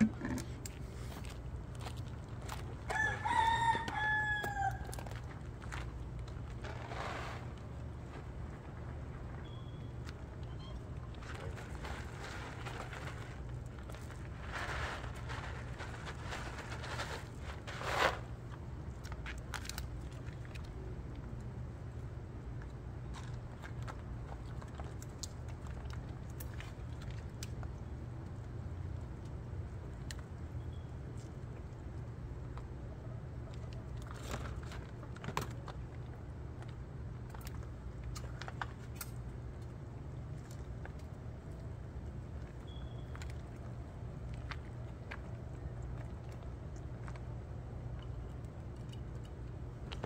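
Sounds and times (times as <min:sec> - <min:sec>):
crunching and rustling of dry food: 0:00.0 - 0:50.0
steady low hum: 0:00.0 - 0:50.0.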